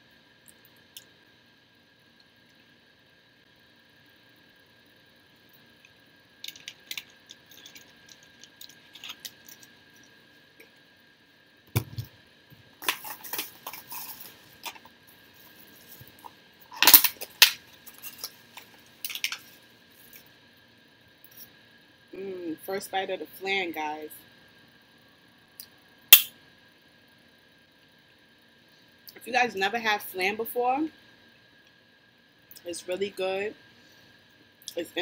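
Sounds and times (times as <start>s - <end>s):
faint high hum: 0.0s - 35.0s
food containers and utensils clicking: 16.0s - 19.5s.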